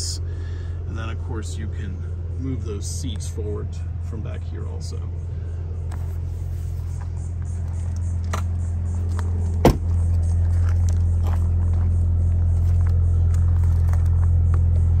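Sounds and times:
car engine idling: 0:00.0 - 0:15.0
footsteps on gravel: 0:05.9 - 0:14.9
car door shutting: 0:09.5 - 0:10.1.

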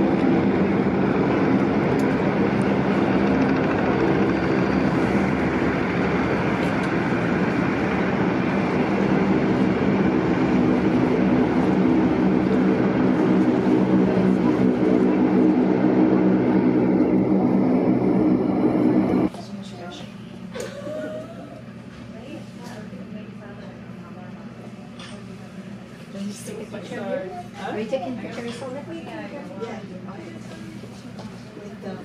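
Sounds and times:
aircraft engine droning: 0:00.0 - 0:19.3.

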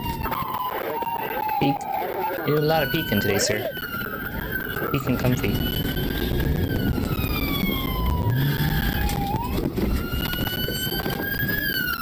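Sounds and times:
police siren wailing: 0:00.0 - 0:12.0
engine and road noise: 0:03.7 - 0:12.0.

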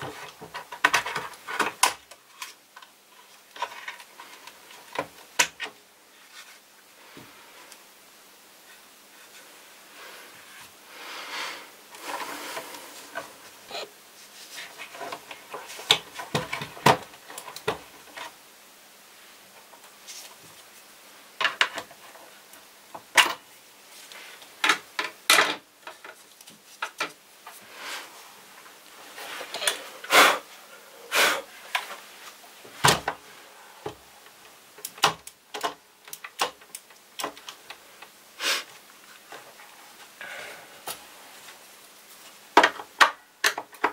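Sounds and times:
plastic parts clicking and knocking: 0:00.0 - 0:05.8, 0:14.8 - 0:18.3, 0:21.4 - 0:22.0, 0:34.8 - 0:38.2, 0:42.6 - 0:43.9.

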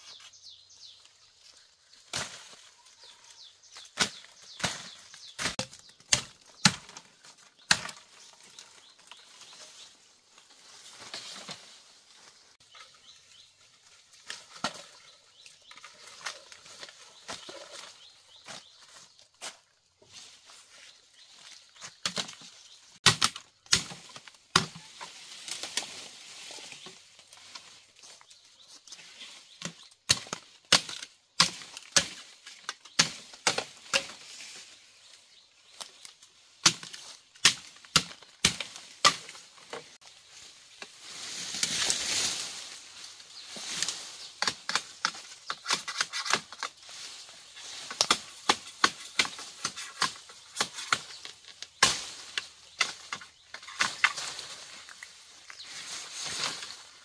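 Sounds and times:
leaves and canes rustling: 0:00.0 - 0:57.0
machete chopping bamboo: 0:03.8 - 0:08.2, 0:23.0 - 0:25.0, 0:29.6 - 0:34.3, 0:36.6 - 0:39.8, 0:44.4 - 0:46.7, 0:47.9 - 0:54.4.

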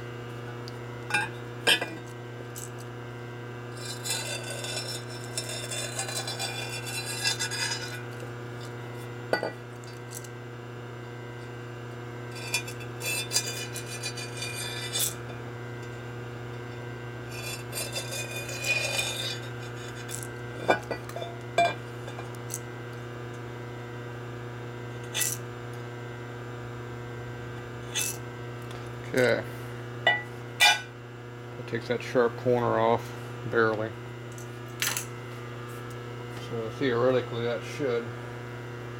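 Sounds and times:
steady low hum: 0:00.0 - 0:38.9
deburring tool scraping metal edge: 0:03.7 - 0:08.2, 0:12.3 - 0:15.4, 0:17.2 - 0:22.6, 0:25.0 - 0:25.4, 0:27.9 - 0:28.2.

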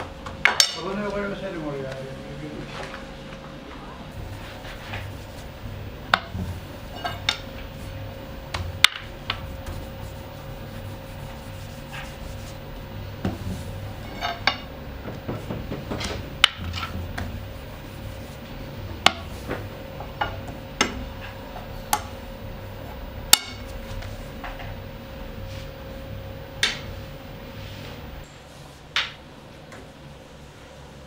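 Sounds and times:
steady machine hum: 0:00.0 - 0:31.0
utensils clacking and clinking: 0:06.1 - 0:07.8, 0:13.2 - 0:17.4.

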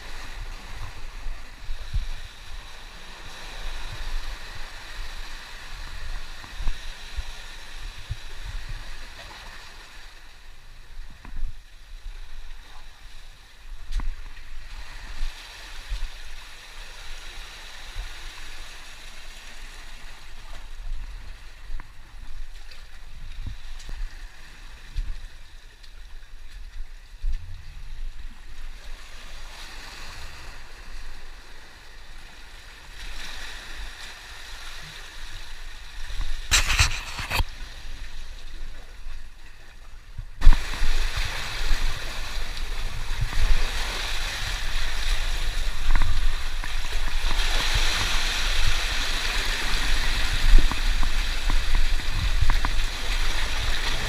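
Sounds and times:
seawater washing over rocks: 0:33.0 - 0:39.4, 0:40.3 - 0:54.0.

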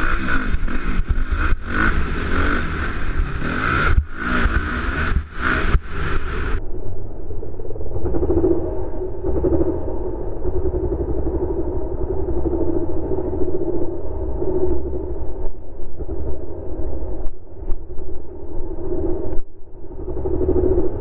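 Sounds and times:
motorcycle engine revving: 0:00.0 - 0:06.6.

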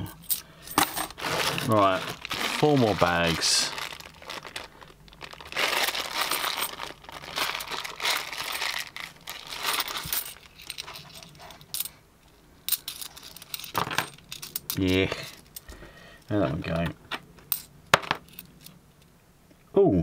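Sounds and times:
coins clinking: 0:00.0 - 0:01.2, 0:05.6 - 0:12.0, 0:12.7 - 0:15.7, 0:17.5 - 0:18.8
plastic bag crinkling and tearing: 0:01.1 - 0:10.5.

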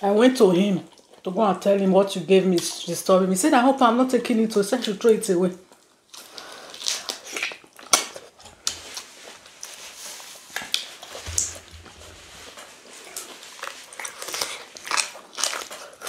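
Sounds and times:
wet chewing: 0:05.6 - 0:16.0.

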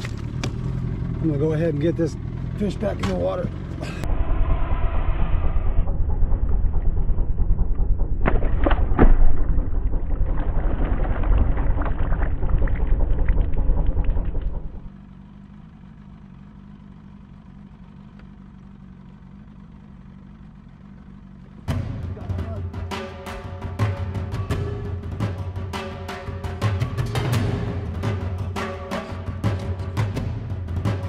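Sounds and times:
heavy low rumble: 0:00.0 - 0:25.8
fish splashing into water: 0:08.4 - 0:14.3.

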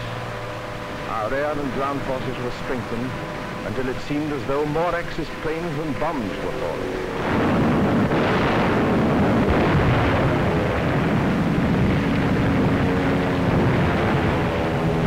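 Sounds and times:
bomb blasts and gunfire: 0:07.0 - 0:15.0.

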